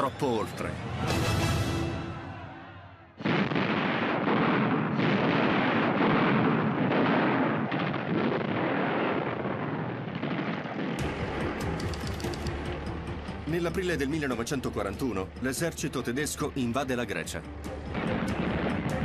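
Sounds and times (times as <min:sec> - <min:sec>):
dense gunfire: 0:03.2 - 0:12.8
heavy blasts: 0:03.2 - 0:13.2.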